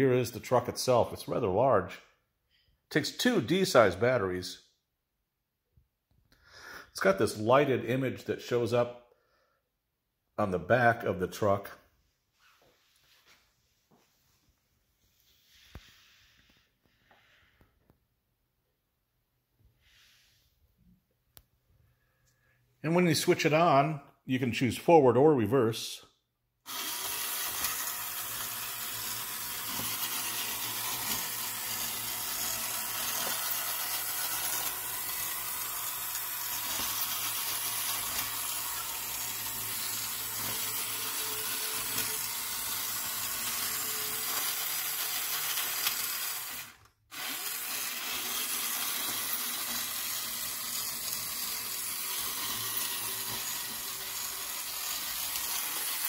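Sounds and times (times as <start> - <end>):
toy motor and gears whirring: 26.7 - 56.0.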